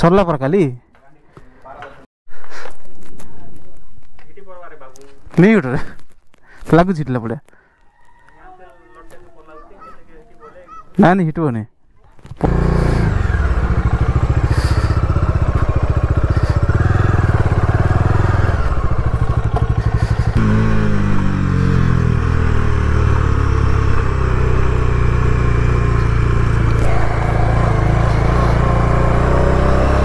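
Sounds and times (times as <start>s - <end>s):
motorcycle engine pulling away: 12.4s - 30.0s.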